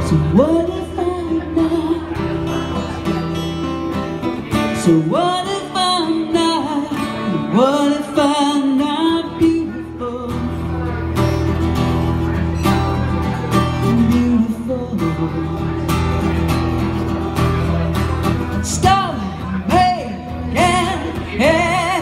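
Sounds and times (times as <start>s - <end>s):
woman singing: 0.0s - 2.2s, 4.8s - 10.6s, 13.8s - 15.8s, 18.6s - 22.0s
acoustic guitar strumming: 0.0s - 22.0s.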